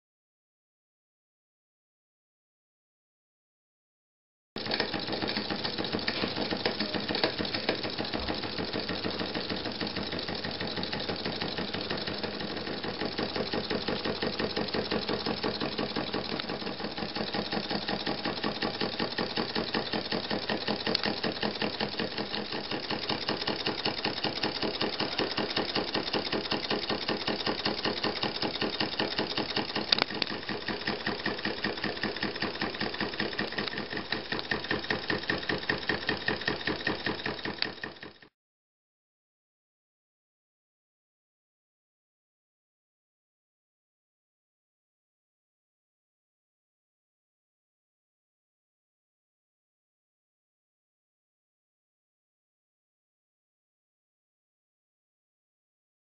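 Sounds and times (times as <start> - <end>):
model steam engine exhaust puffs: 4.6 - 38.3.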